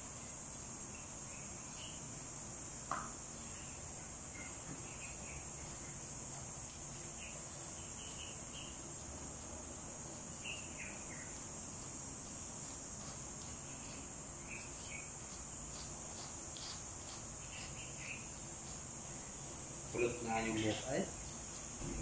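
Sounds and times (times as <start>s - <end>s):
insect chorus chirring: 0.0s - 22.0s.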